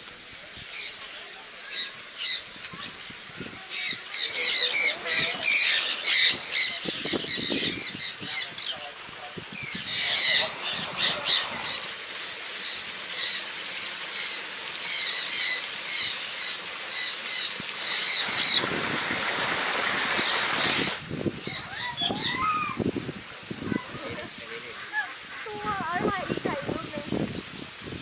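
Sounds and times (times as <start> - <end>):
rushing hiss: 0.0 - 28.0
small parrots chirping: 3.7 - 8.8, 9.6 - 11.9
low gliding bird calls: 9.6 - 12.0.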